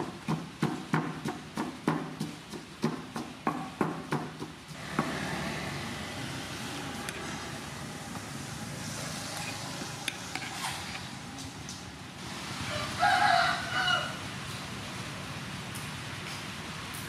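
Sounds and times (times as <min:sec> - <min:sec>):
pestle pounding in wooden mortar: 0:00.0 - 0:05.5.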